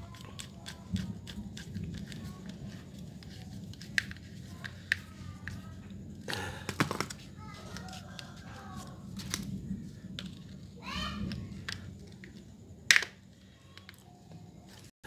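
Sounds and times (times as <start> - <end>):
plastic parts knocking: 6.3 - 8.4.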